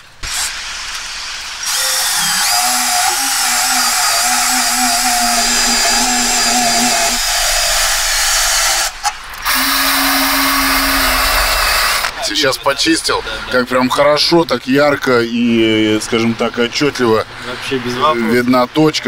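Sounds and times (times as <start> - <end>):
drill wire brush scrubbing metal: 0.2 - 12.0.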